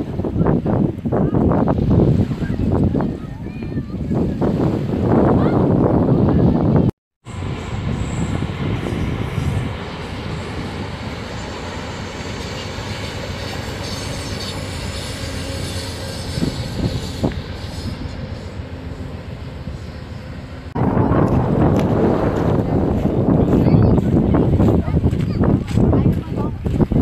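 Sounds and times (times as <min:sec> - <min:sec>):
train wheels rumbling on rails: 0:07.3 - 0:27.0.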